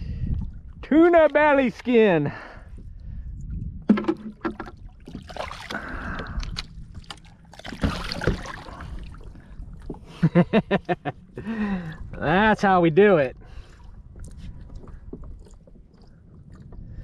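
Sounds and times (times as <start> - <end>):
fish splashing in water: 7.0 - 9.2.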